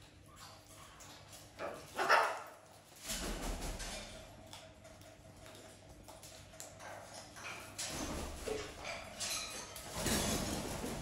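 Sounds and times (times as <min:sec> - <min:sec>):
dog barking: 0:01.6 - 0:02.5.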